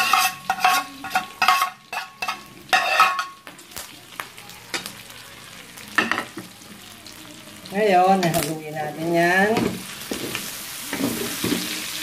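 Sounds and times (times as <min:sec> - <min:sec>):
metal spatula scraping a pan: 0:00.0 - 0:03.4, 0:09.6 - 0:11.9
pork frying in fat: 0:00.0 - 0:12.0.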